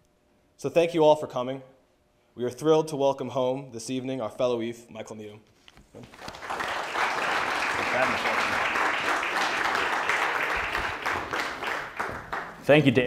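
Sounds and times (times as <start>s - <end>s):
audience applauding: 6.0s - 12.7s.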